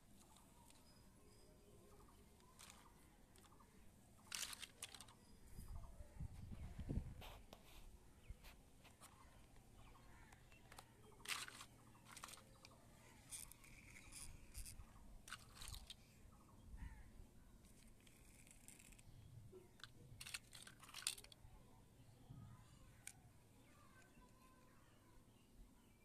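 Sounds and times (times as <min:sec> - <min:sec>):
plastic toy vehicles clicking: 0:00.2 - 0:01.0, 0:01.9 - 0:05.3, 0:08.9 - 0:16.1, 0:17.6 - 0:21.6, 0:22.9 - 0:24.7.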